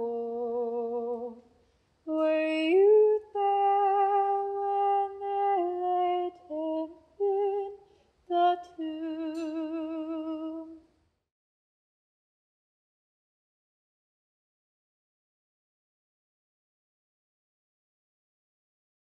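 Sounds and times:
woman singing unaccompanied: 0:00.0 - 0:10.9.

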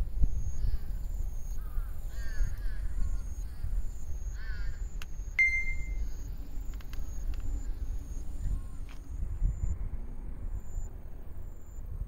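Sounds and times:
wind rumble on microphone: 0:00.0 - 0:12.0
crows cawing: 0:01.6 - 0:03.7, 0:04.3 - 0:04.9
sharp high tone: 0:05.4 - 0:06.0.

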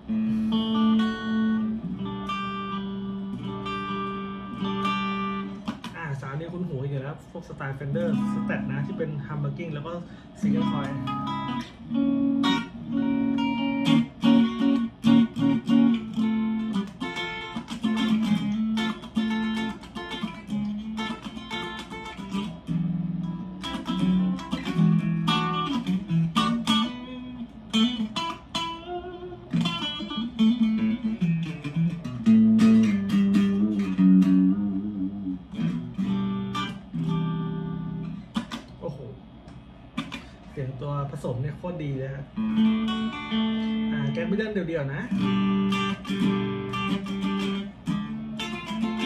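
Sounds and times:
electric guitar through amplifier: 0:00.0 - 0:49.0.

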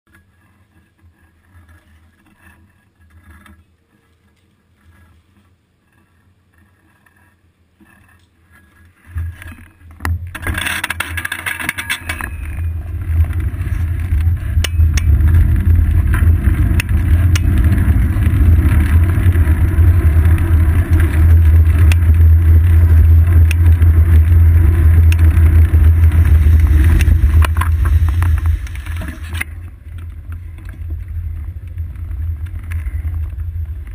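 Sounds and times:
wind and road noise rumble: 0:09.1 - 0:33.9.

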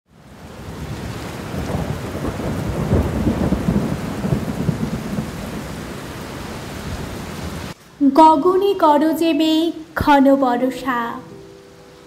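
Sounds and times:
steady rain: 0:00.1 - 0:12.0
thunder rumbling: 0:00.4 - 0:07.8.

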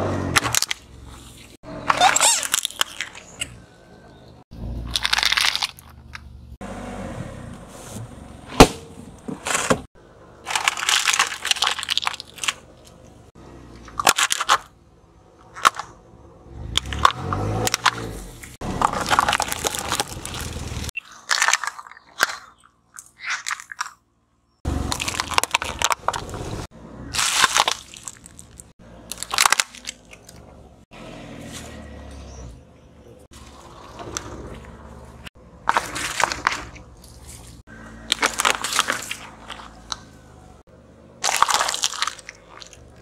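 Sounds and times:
tyres crushing objects: 0:08.5 - 0:13.2, 0:16.6 - 0:30.5, 0:33.3 - 0:43.0.

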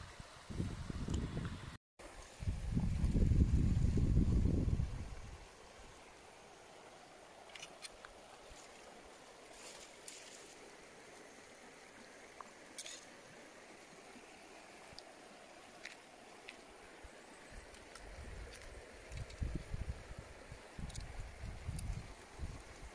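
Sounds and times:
shallow river rushing: 0:05.3 - 0:20.8.

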